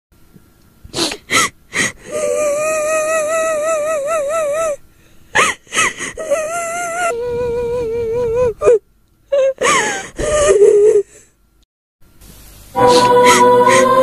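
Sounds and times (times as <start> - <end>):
woman gasping sobs: 1.3 - 2.9, 12.8 - 13.9
woman high quavering wail: 12.8 - 13.9.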